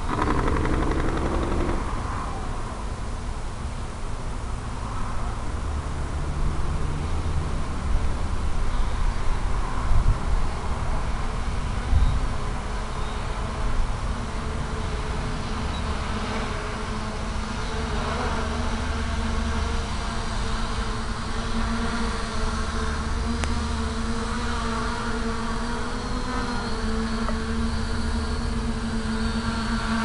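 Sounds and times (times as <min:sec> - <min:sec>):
drone propellers buzzing: 0:00.0 - 0:03.0, 0:16.0 - 0:30.0.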